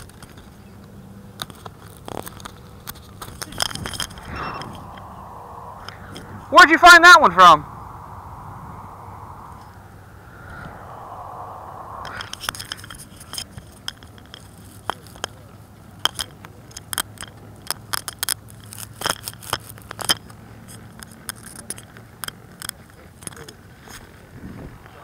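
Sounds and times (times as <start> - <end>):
faint low hum: 3.2 - 13.4.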